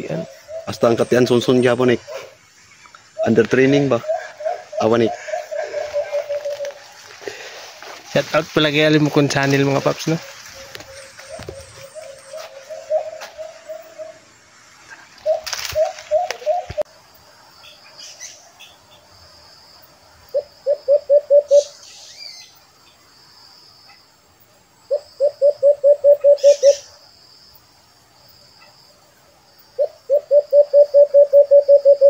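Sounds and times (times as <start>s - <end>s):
dove hooting: 0.0s - 2.4s, 3.2s - 7.7s, 10.0s - 16.9s, 20.3s - 21.8s, 24.9s - 27.0s, 29.8s - 32.0s.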